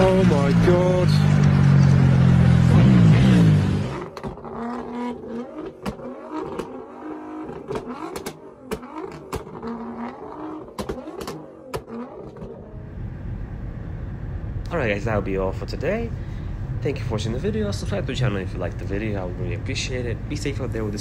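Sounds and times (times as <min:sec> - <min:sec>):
car engine running loud: 0:00.0 - 0:15.1
exhaust pops: 0:02.7 - 0:12.7.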